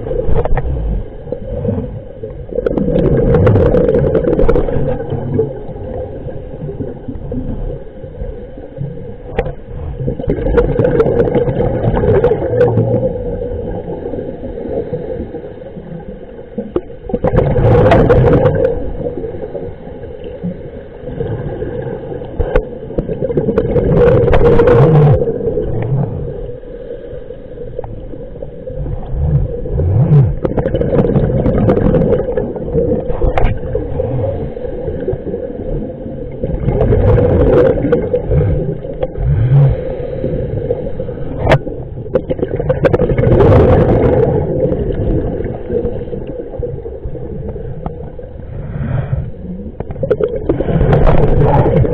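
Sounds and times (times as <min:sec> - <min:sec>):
low hum: 0:00.0 - 0:17.0, 0:17.6 - 0:51.9
underwater breath bubbles: 0:00.0 - 0:51.9
regulator breathing: 0:38.4 - 0:41.4.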